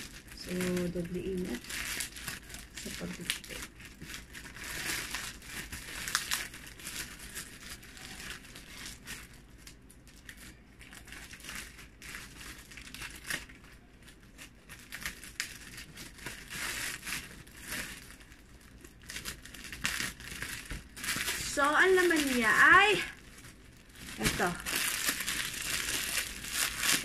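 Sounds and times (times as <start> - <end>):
packing tape tearing: 0.0 - 9.4, 14.4 - 18.2, 19.0 - 23.0, 23.9 - 27.0
plastic pouch crinkling: 0.0 - 27.0.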